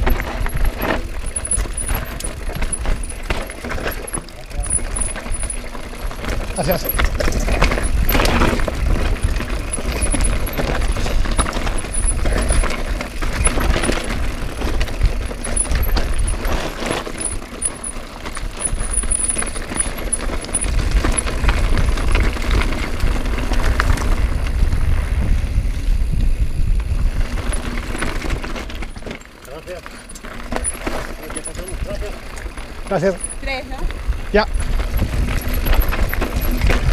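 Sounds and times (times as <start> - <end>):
bike rattling over bumps: 0.0 - 36.9
tyres rolling over gravel: 0.0 - 36.9
wind buffeting microphone: 4.5 - 16.6, 18.5 - 28.6, 31.5 - 36.9.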